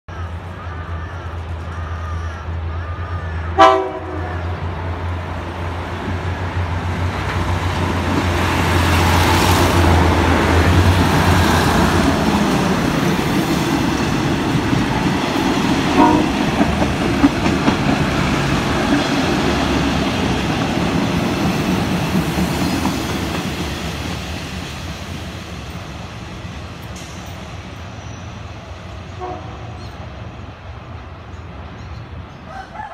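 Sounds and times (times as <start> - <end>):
train engine hum: 0.1 - 32.9
train horn: 3.6 - 4.6, 15.9 - 16.6, 29.2 - 30.0
wheels clattering on rails: 13.6 - 24.2.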